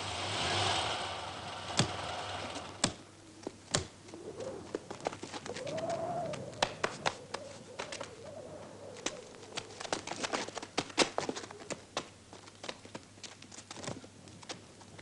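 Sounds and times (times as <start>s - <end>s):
car pulling up: 0.0s - 3.1s
quick light footsteps: 2.8s - 15.0s
shuffling: 3.2s - 15.0s.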